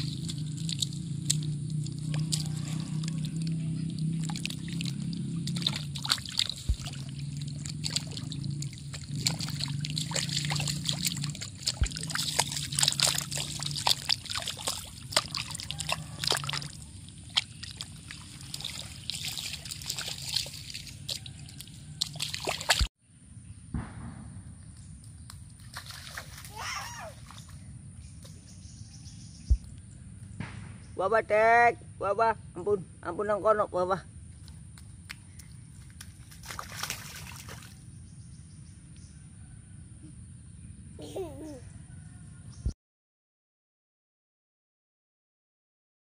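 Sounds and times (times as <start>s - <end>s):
child splashing in muddy puddle: 0.0s - 22.9s, 25.5s - 27.6s, 34.4s - 37.8s, 41.0s - 41.6s.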